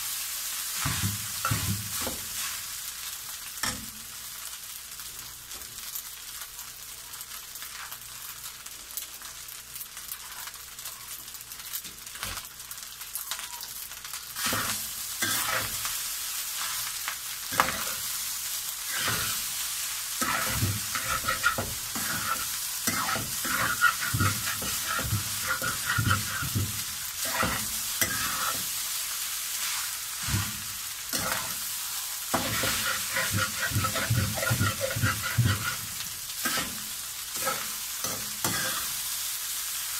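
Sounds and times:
rice sizzling in a pan: 0.0s - 39.9s
metal spatula scraping pan: 14.4s - 15.9s, 17.5s - 18.0s, 18.9s - 19.5s, 20.2s - 28.8s, 29.6s - 39.0s.

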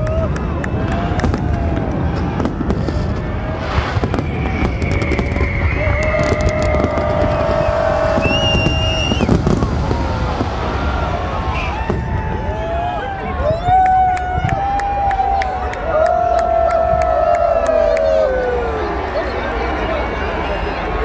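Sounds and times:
crowd shouting and cheering: 0.0s - 21.0s
fireworks bursting: 0.4s - 13.2s
sharp firework cracks: 1.0s - 12.4s.

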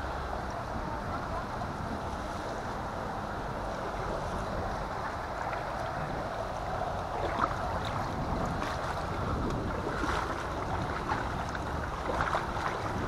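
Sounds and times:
water washing against kayak hull: 0.0s - 13.0s
wind buffeting microphone: 0.0s - 13.0s
small splashes: 4.3s - 13.0s.

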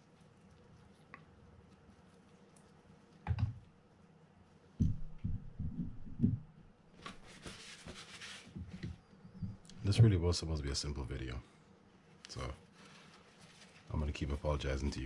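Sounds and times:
short rustle: 7.0s - 8.8s, 12.0s - 15.0s.

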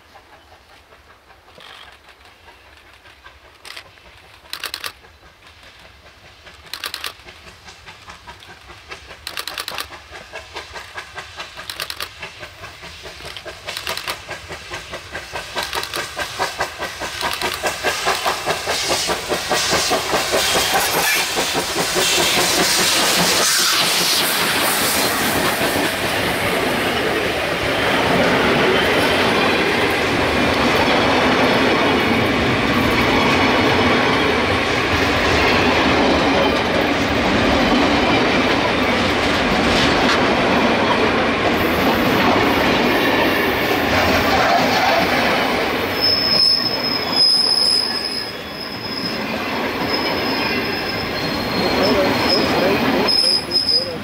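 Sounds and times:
steam locomotive approaching: 0.0s - 54.0s
short sharp steam bursts: 6.0s - 30.2s.

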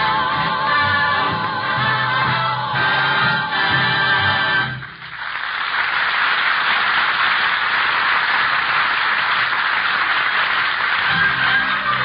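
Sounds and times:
audience applauding: 4.3s - 12.0s.

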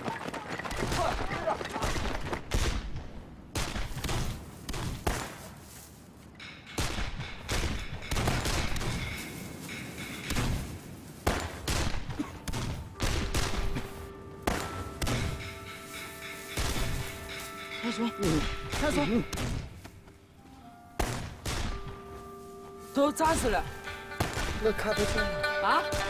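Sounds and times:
gunfire shots and volleys: 0.8s - 5.5s, 6.7s - 15.6s, 21.0s - 21.9s.

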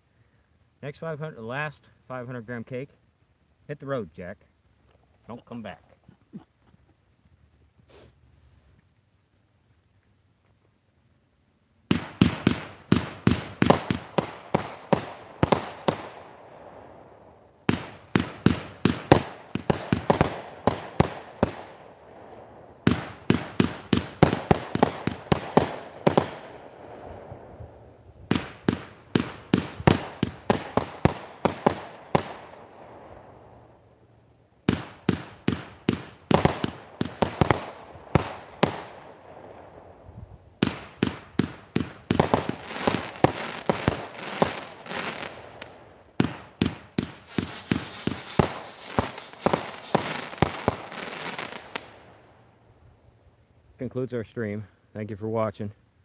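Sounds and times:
firework bangs: 11.9s - 33.7s, 34.6s - 52.2s
firework crackle: 11.9s - 34.0s, 34.6s - 52.6s.

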